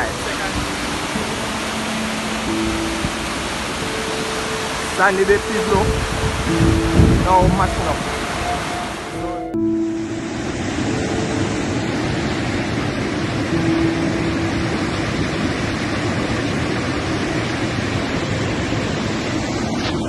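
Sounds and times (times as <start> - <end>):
mudflow rushing: 0.0 - 9.8.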